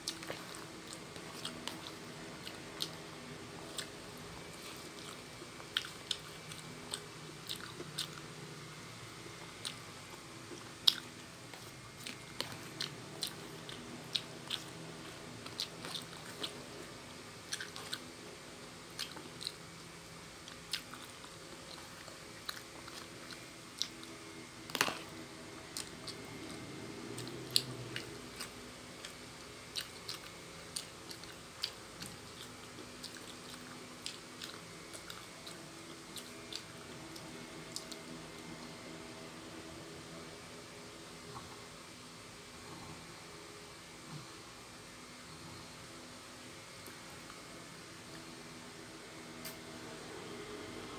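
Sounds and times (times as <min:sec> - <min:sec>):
chewing noodles: 0:00.0 - 0:08.5, 0:09.4 - 0:18.1, 0:18.9 - 0:19.8, 0:20.4 - 0:38.8
faint steady hum: 0:00.0 - 0:50.9.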